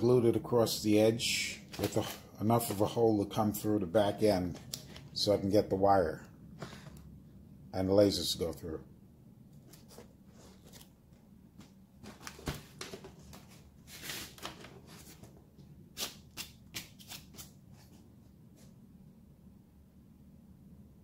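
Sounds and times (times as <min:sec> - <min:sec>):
steady low hum: 0:00.0 - 0:21.0
hands rustling paper mask: 0:09.6 - 0:15.4.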